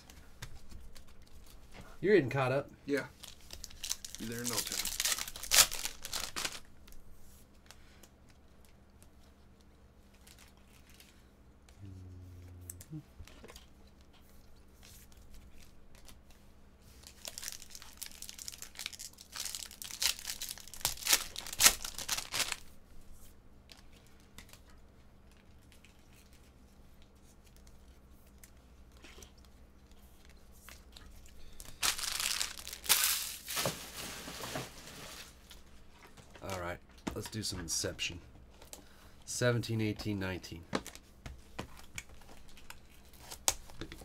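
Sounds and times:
handling of cards: 3.1 - 7.0, 12.8 - 22.6, 23.7 - 37.5
plastic wrapper tearing and crinkling: 3.2 - 7.0, 17.0 - 22.6, 31.6 - 35.6.

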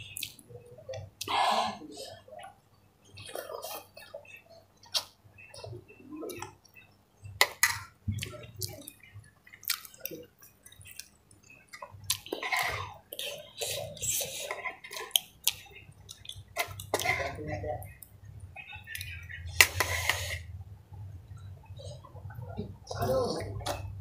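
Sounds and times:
chewing: 7.4 - 17.3.

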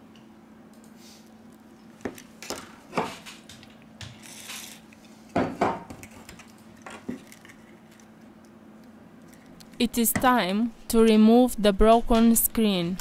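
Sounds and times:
faint steady hum: 0.0 - 13.0
tools knocking on a table: 2.0 - 4.2, 5.4 - 6.0.

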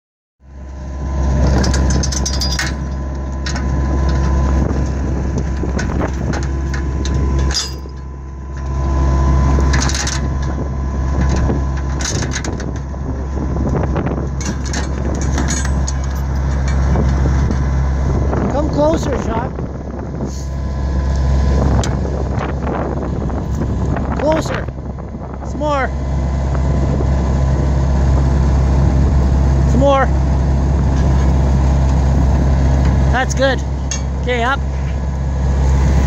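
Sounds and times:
engine idling: 0.4 - 36.0
metallic clicks and rattles: 1.6 - 4.2.

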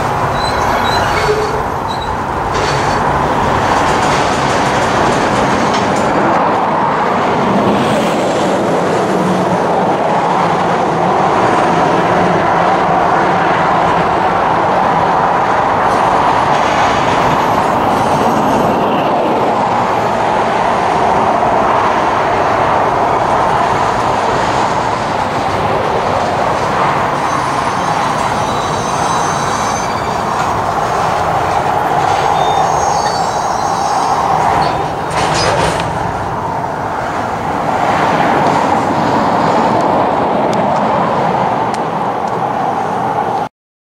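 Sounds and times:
high-pitched wheel squeal: 0.0 - 3.0, 27.1 - 35.6
train wheels rumbling on rails: 0.0 - 43.5.

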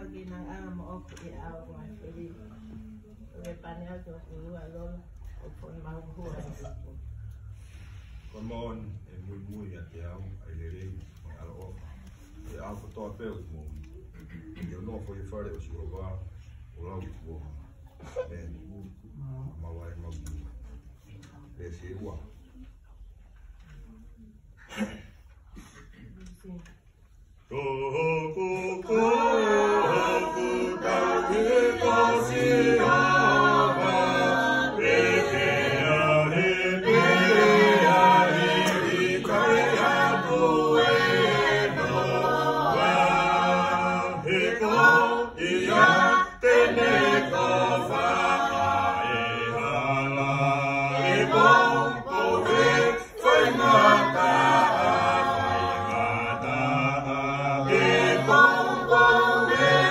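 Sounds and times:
group singing in harmony: 27.5 - 59.9.

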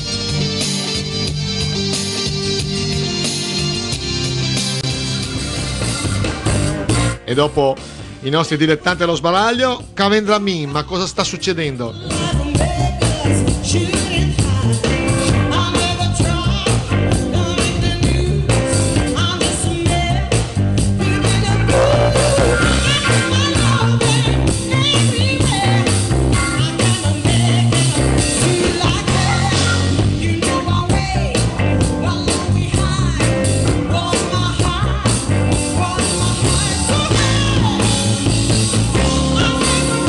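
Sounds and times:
woman singing blues: 11.9 - 38.2, 39.0 - 40.0
electric guitar: 12.0 - 40.0
steady drum beat: 21.3 - 24.4.

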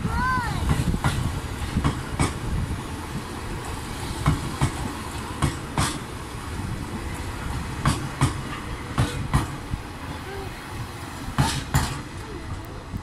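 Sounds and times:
train low rumble: 0.0 - 13.0
wheels clicking over rail joints: 0.0 - 13.0.

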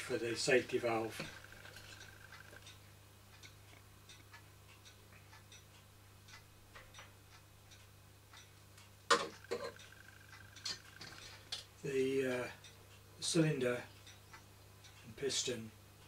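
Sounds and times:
steady low hum: 0.0 - 16.0
faint light ticks: 2.0 - 11.7.

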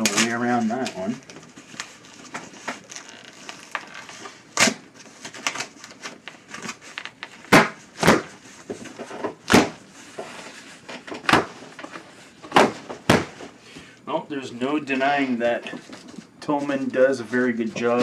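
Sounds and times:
cardboard tearing rips: 2.7 - 8.3.

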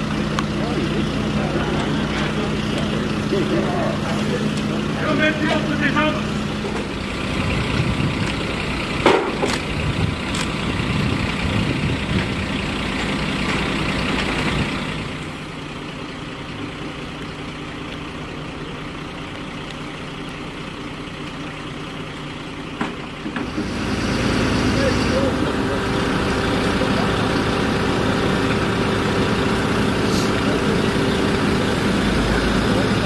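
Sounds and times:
truck engine idling: 0.0 - 33.0.

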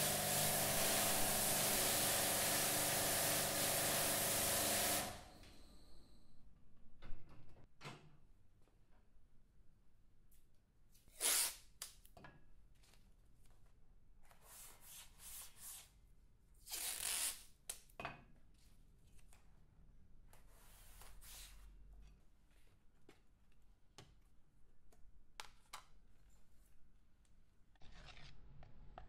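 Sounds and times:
masking tape ripping off roll: 11.1 - 11.9, 16.6 - 17.5.

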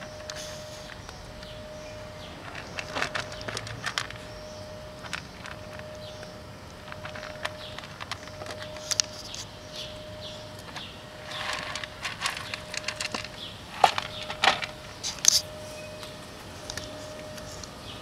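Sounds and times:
kitten crunching dry kibble: 0.0 - 9.9, 10.5 - 15.5
faint steady tone: 0.0 - 18.0
kibble scattering on asphalt: 2.4 - 9.9, 10.6 - 15.4.

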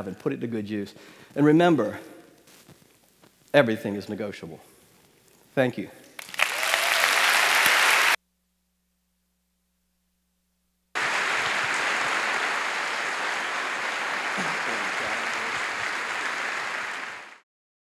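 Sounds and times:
audience applauding: 6.2 - 8.2, 11.0 - 17.4.

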